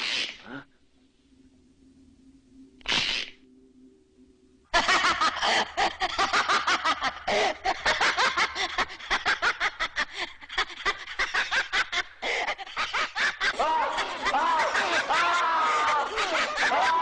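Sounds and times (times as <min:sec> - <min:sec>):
rapid cackling laughter: 0:04.8 - 0:17.0.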